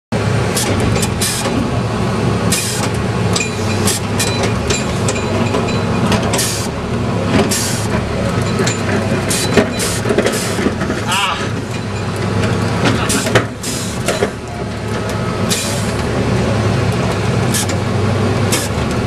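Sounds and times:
diesel engine running: 0.1s - 19.0s.

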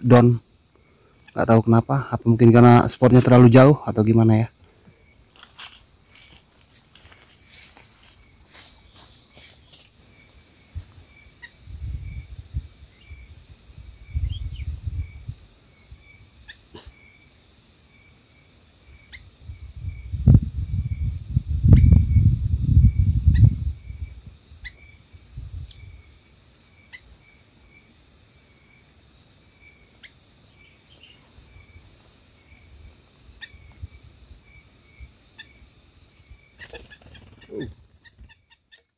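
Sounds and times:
faint chirping: 0.0s - 38.9s
insect drone: 0.0s - 38.9s.

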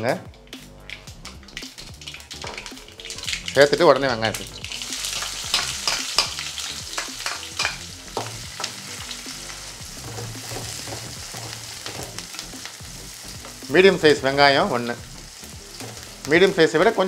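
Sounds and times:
onion sizzling in hot oil: 0.8s - 17.0s
spatula scraping and tapping pan: 5.1s - 8.8s, 10.0s - 12.7s, 15.8s - 16.1s.

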